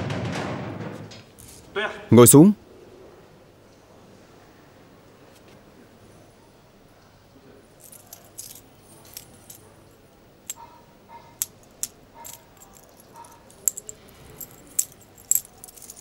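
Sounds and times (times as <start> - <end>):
metal jingling and clinking: 7.7 - 16.0.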